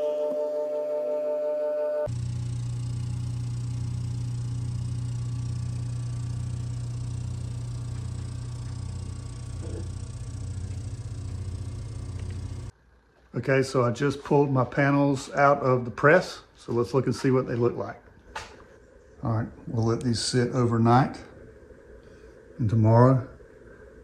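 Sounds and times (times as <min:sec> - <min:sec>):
pump motor humming: 0:02.1 - 0:12.7.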